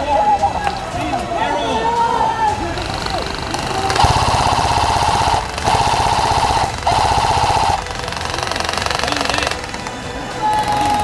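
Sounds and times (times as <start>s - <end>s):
airsoft rifle firing full auto: 2.8s - 11.0s.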